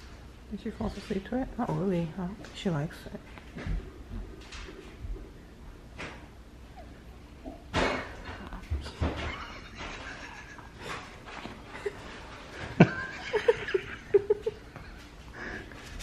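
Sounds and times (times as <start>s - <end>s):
stifled laughter: 9.2s - 14.8s.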